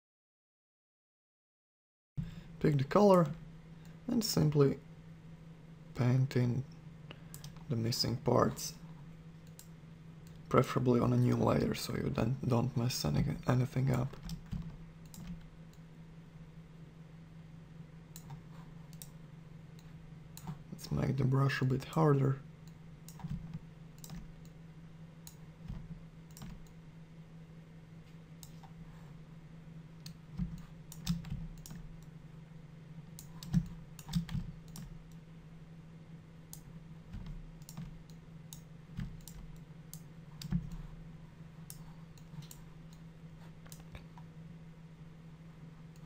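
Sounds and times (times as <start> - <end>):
low hum: 2.2 - 46.0
mouse and keyboard clicks: 25.3 - 26.8.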